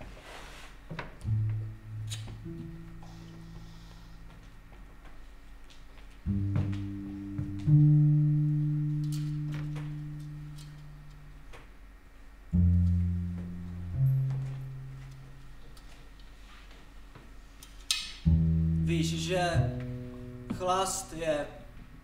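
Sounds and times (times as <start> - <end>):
low plucked notes ringing out: 1.2 - 4.7, 6.2 - 11.6, 12.4 - 15.9, 18.2 - 22.0.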